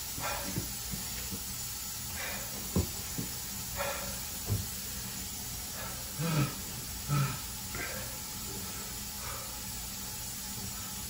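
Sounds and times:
man breathing out hard: 2.1s - 2.7s, 3.8s - 4.3s, 5.7s - 9.7s.

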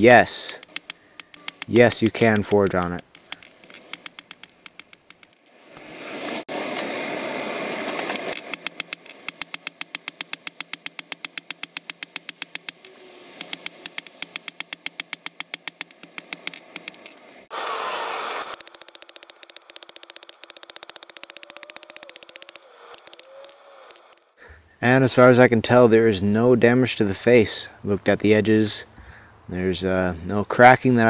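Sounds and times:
hammer striking anvil ringing: 0.5s - 4.5s, 8.2s - 17.2s.

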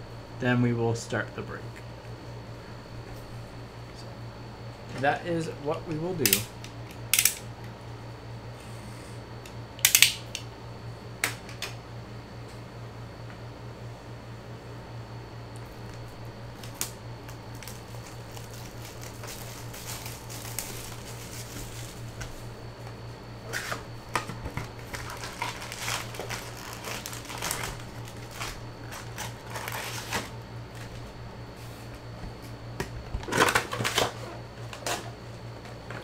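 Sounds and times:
steady low hum: 0.0s - 36.0s
card packs rustling and crinkling: 16.6s - 22.5s, 23.5s - 31.1s, 33.2s - 35.0s.

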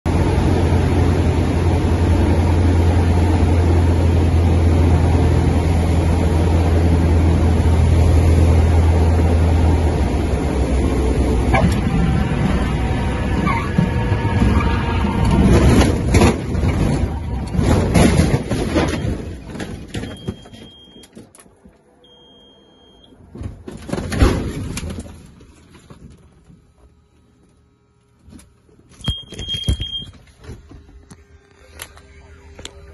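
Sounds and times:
aircraft engine rumble: 0.1s - 17.8s
bangs and rattles: 11.5s - 20.6s, 23.3s - 26.5s
high electronic beep: 22.1s - 23.1s, 29.0s - 30.1s.

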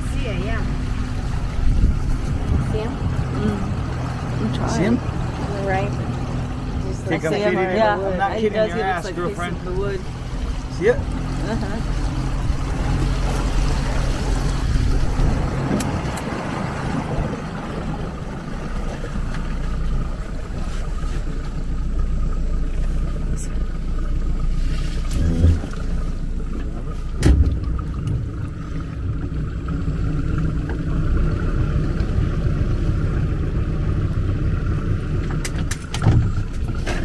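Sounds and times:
outboard motor running slowly: 0.0s - 37.0s
knocks against boat: 27.2s - 28.3s.

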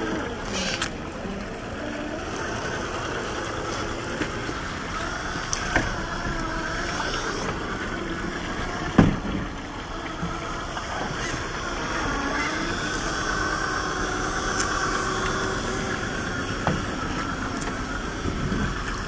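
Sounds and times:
electric motor whining: 0.0s - 19.0s
scattered clicks: 14.4s - 15.4s.

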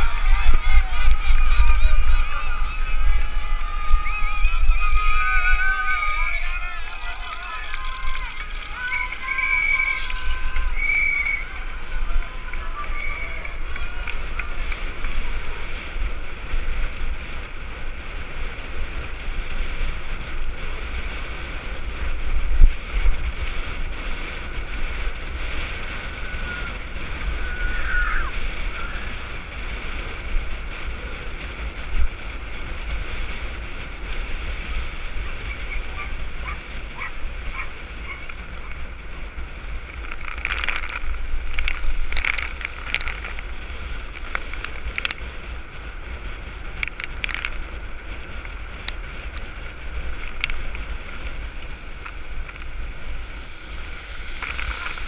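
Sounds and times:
bike rattling clicks: 0.0s - 17.6s, 28.6s - 55.0s
tyres rushing on pavement: 0.0s - 55.0s
wind buffeting microphone: 0.0s - 55.0s.

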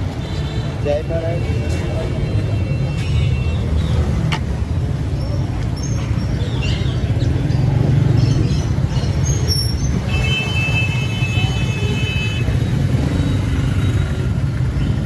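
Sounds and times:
motorcycle and car engines: 3.8s - 10.1s, 12.4s - 15.0s.

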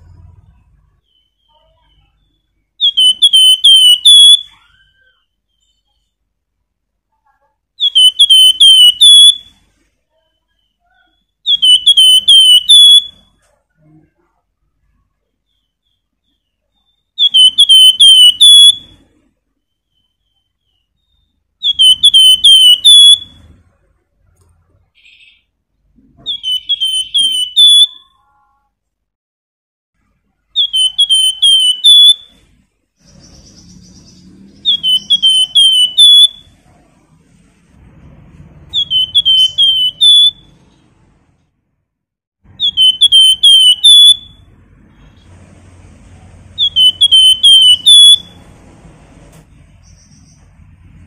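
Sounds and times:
bird singing slurred whistles: 1.0s - 6.1s, 7.8s - 9.6s, 10.6s - 13.2s, 16.8s - 19.1s, 19.7s - 23.5s, 26.2s - 28.1s, 30.6s - 32.4s, 33.0s - 36.5s, 38.7s - 40.5s, 42.6s - 44.4s, 46.6s - 48.4s.

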